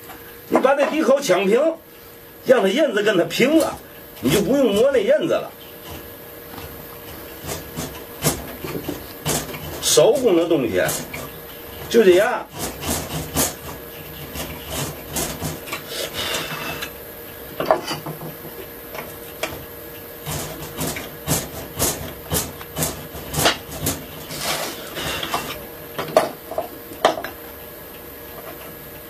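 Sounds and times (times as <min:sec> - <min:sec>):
chisel scraping wood: 0:10.9 - 0:17.0, 0:20.2 - 0:25.6.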